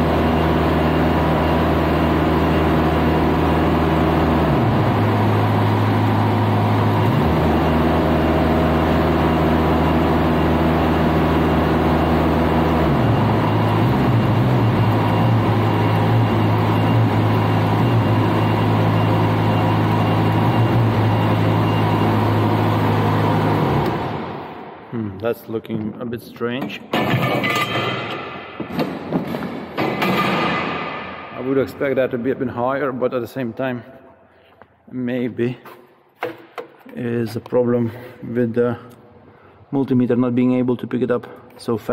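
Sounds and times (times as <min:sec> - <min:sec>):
engine running with changing revs: 0:00.0 - 0:24.7.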